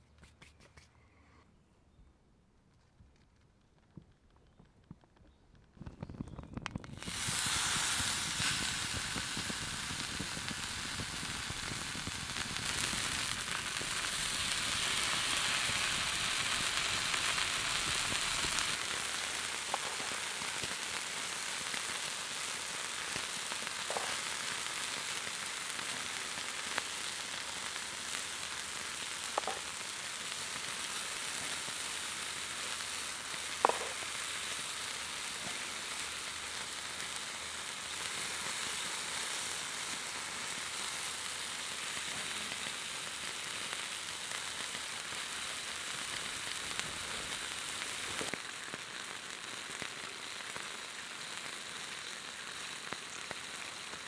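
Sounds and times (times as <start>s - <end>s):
sharp pops: 3.3s - 18.8s, 19.6s - 20.8s, 23.1s - 24.6s, 29.3s - 29.8s, 33.4s - 34.3s
meat sizzling on hot stone: 6.6s - 54.0s.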